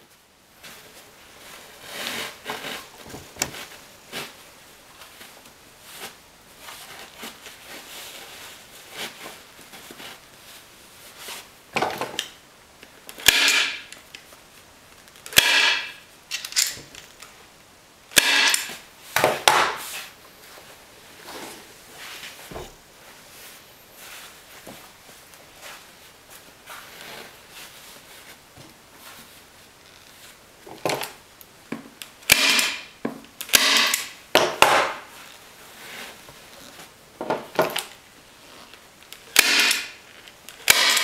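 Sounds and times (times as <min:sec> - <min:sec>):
staple gun snapping: 0:15.3 - 0:16.8, 0:32.3 - 0:32.8, 0:33.4 - 0:34.1, 0:39.4 - 0:39.9, 0:40.7 - 0:41.0
fabric rustling: 0:19.8 - 0:30.5.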